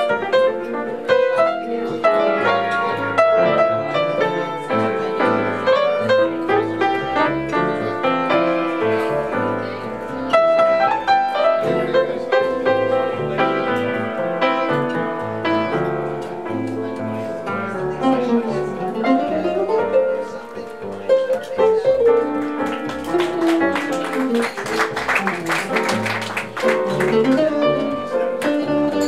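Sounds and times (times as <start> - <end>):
jazz piano playing: 0.0 - 29.0.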